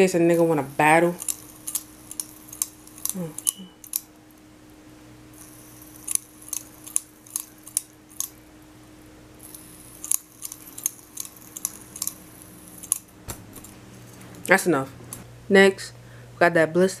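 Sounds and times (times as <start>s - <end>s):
metal fidget spinner clicking: 0.0s - 4.1s, 5.4s - 8.4s, 9.4s - 13.7s.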